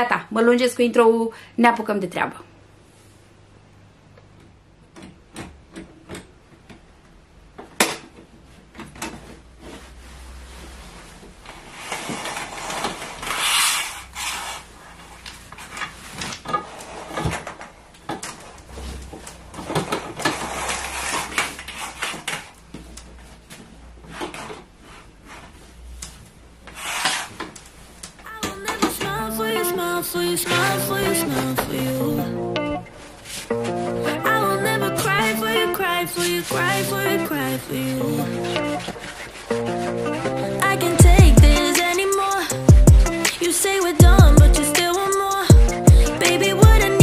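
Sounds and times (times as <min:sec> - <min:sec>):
fabric rustling: 0:08.4 - 0:28.4, 0:32.9 - 0:33.8, 0:38.8 - 0:40.0
curtain rings scraping along pole: 0:09.2 - 0:17.6, 0:18.7 - 0:22.6, 0:26.7 - 0:27.9.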